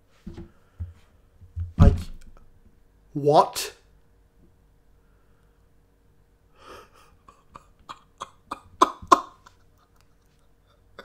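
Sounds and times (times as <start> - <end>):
man laughing: 6.6 - 11.0.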